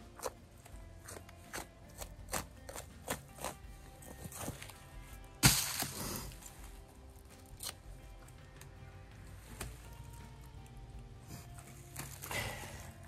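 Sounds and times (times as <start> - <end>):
soft background music: 0.0 - 13.0
loud sudden crunch: 5.4 - 6.4
dry leaves rustling and crunching: 5.4 - 6.6.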